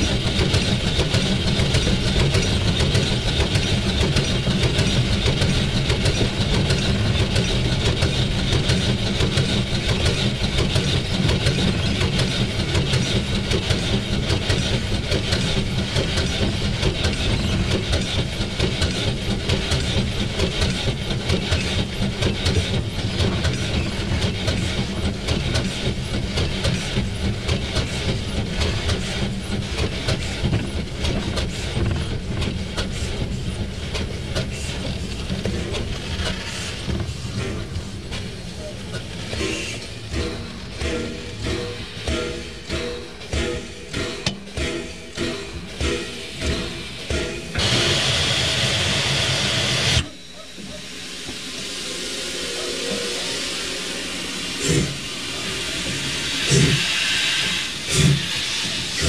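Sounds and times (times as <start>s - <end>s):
continuous rattle: 0.0s - 51.6s
steam locomotive running: 0.0s - 59.0s.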